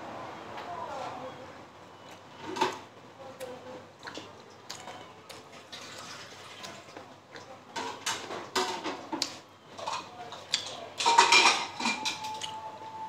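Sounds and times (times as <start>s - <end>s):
person chewing: 3.4s - 7.5s.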